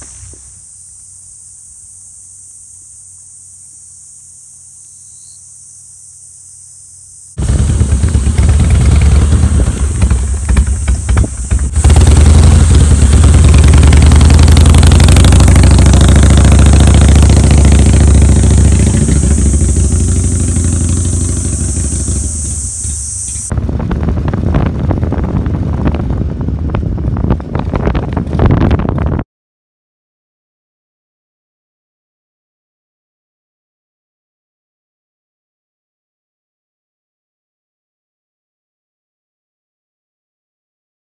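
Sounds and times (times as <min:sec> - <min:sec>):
insect chirring: 0:00.1 - 0:07.4, 0:18.7 - 0:23.5
motorcycle engine idling: 0:07.4 - 0:27.7.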